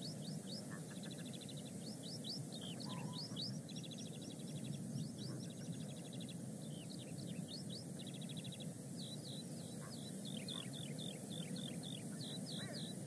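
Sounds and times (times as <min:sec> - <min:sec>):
songbird singing: 0:00.0 - 0:13.0.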